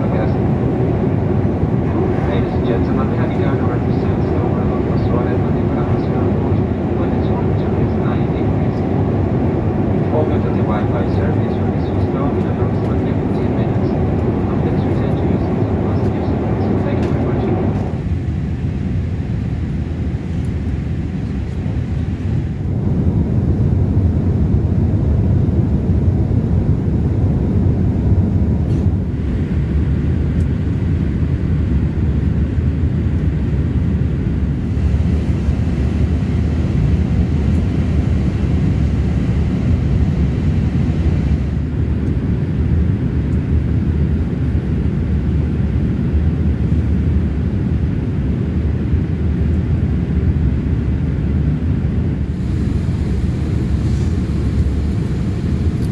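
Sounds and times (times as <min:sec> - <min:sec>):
airliner cabin rushing noise: 0:00.0 - 0:23.6, 0:52.2 - 0:55.9.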